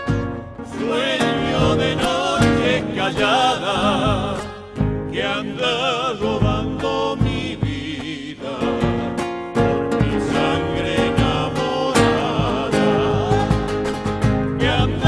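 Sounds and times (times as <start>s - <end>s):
strummed acoustic guitars: 0.0s - 15.0s
vocal group singing in harmony: 0.6s - 15.0s
bass drum beat: 3.9s - 5.4s, 6.4s - 15.0s.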